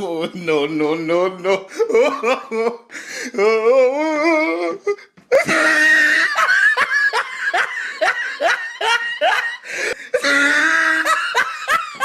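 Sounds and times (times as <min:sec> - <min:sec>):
woman laughing: 0:05.3 - 0:12.0.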